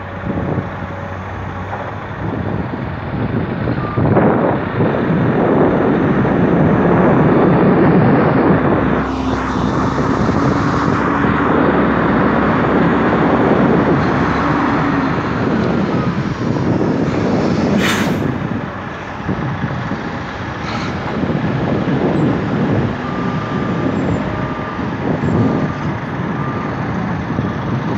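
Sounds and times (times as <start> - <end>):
diesel truck engine driving off: 0.0 - 27.9.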